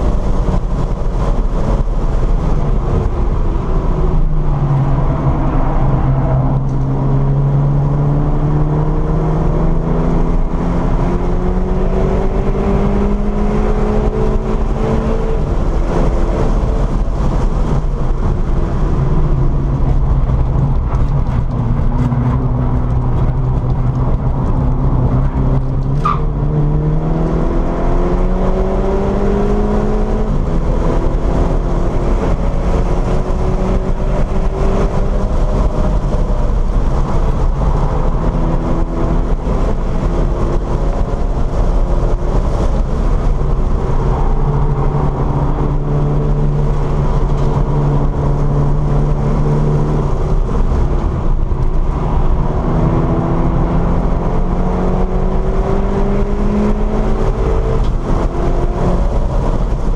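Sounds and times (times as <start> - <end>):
car engine accelerating: 0.0 - 59.9
road and wind noise: 0.0 - 59.9.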